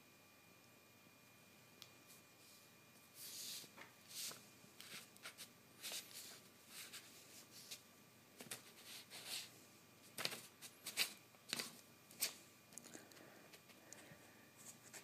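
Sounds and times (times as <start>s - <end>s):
paper sheets rustling: 10.1s - 12.4s.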